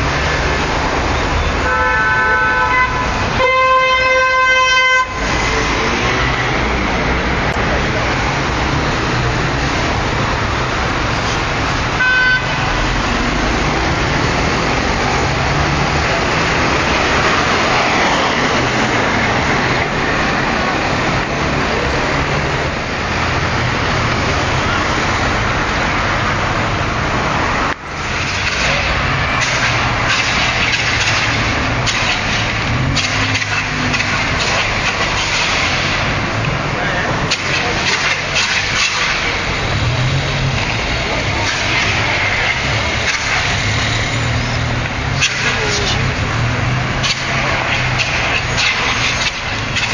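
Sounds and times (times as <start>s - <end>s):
road traffic noise: 0.0s - 49.9s
car horn toot: 1.6s - 5.3s, 12.0s - 12.7s.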